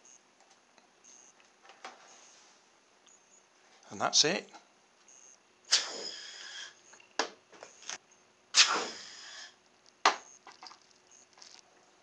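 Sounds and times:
air hissing through balloon tube: 5.7s - 6.8s, 8.6s - 9.6s.

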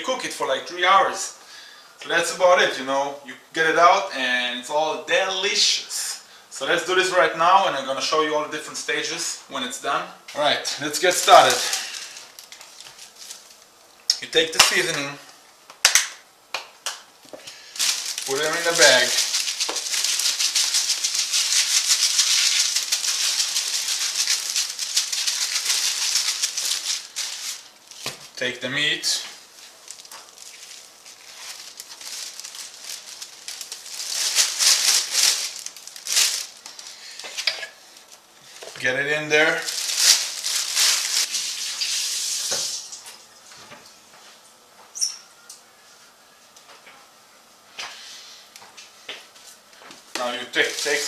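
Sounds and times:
plastic bag crinkling: 10.9s - 13.9s, 17.2s - 43.0s, 50.2s - 51.0s
dry seasoning rattling: 17.5s - 28.4s
brief high squeak: 44.9s - 45.4s.

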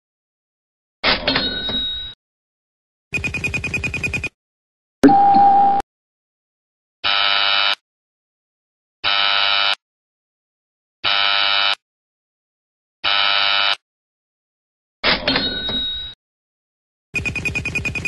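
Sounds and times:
wrong-answer buzzer: 7.1s - 7.8s, 9.0s - 9.8s, 11.0s - 11.8s, 13.0s - 13.8s.

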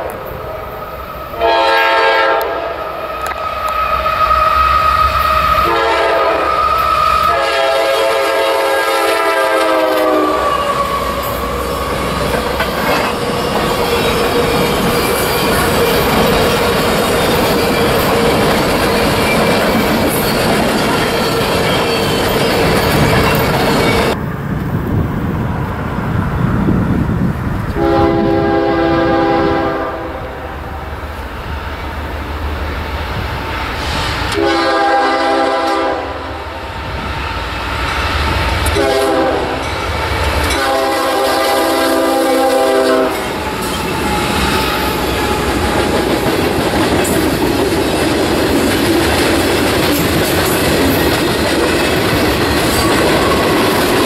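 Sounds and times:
locomotive air horn: 1.4s - 12.2s, 27.8s - 30.8s, 33.8s - 36.4s, 38.7s - 39.7s, 40.5s - 45.7s
freight cars rolling: 10.4s - 25.6s.

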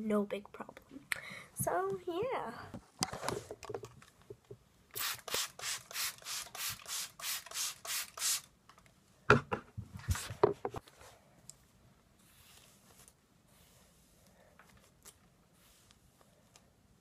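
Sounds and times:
hairbrush strokes through hair: 12.2s - 14.2s.

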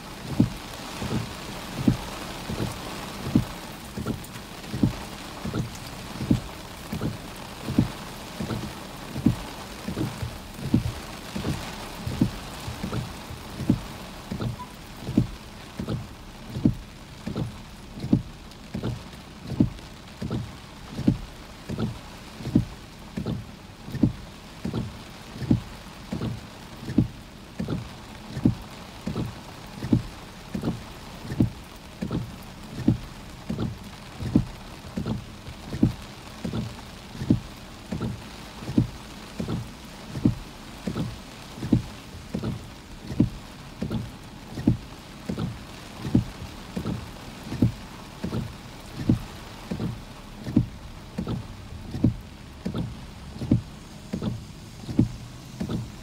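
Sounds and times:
rain and wind on car: 0.0s - 56.0s
windshield wipers knocking: 0.1s - 56.0s.

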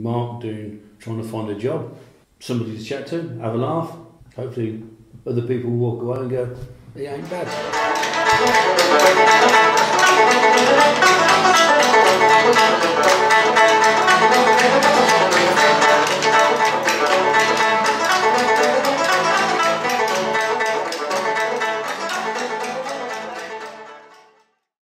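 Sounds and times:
acoustic guitar: 6.7s - 23.8s
banjo: 7.0s - 24.4s.

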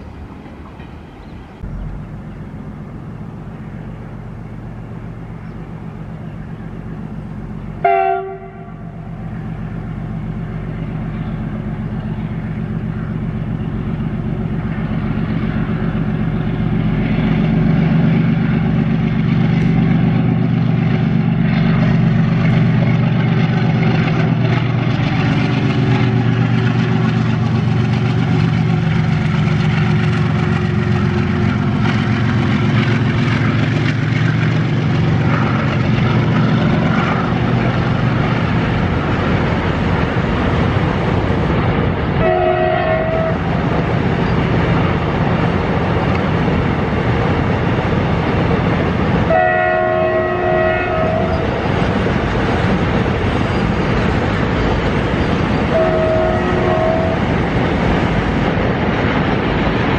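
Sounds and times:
diesel locomotive drone: 0.0s - 59.9s
train horn blast: 7.8s - 9.2s, 30.3s - 31.4s, 42.2s - 43.4s, 49.3s - 51.5s, 55.7s - 57.3s.

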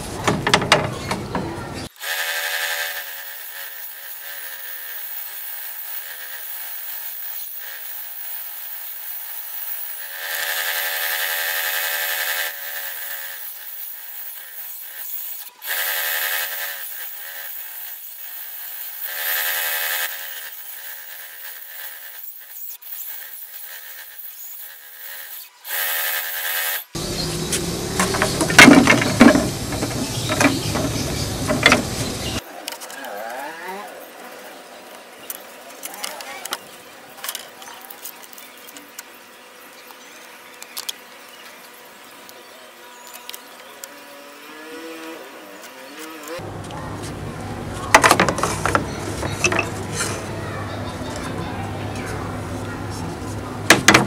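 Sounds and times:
table saw cutting wood: 1.8s - 33.1s, 47.8s - 50.3s
wooden strips clattering: 27.9s - 32.1s, 47.9s - 50.2s, 53.7s - 54.0s.

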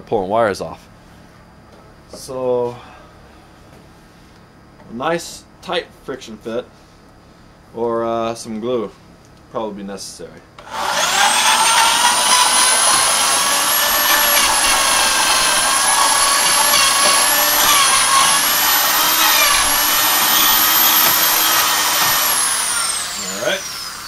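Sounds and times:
electric drill boring into wood: 10.6s - 24.0s.

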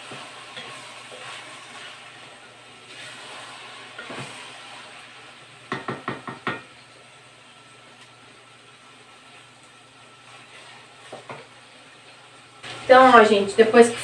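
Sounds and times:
wooden spoon scraping a pot: 0.0s - 5.0s, 10.2s - 11.5s
meat sizzling in a pot: 0.0s - 14.0s
spoon knocking on a metal pot: 5.7s - 6.7s.

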